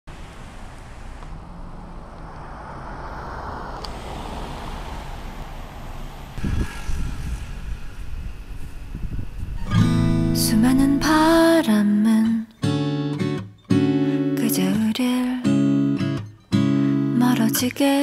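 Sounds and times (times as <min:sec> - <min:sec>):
car passing: 0:00.1 - 0:11.4
wind buffeting microphone: 0:00.3 - 0:11.4.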